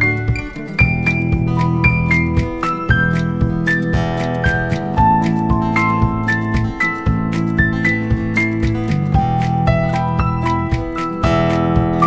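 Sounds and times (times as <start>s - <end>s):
instrumental music with steady beat: 0.0s - 12.0s.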